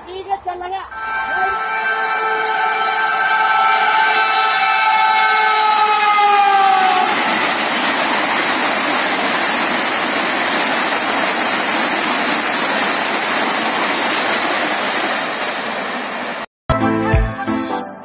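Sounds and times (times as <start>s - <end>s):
train horn: 0.9s - 7.4s
train rushing past: 0.9s - 16.5s.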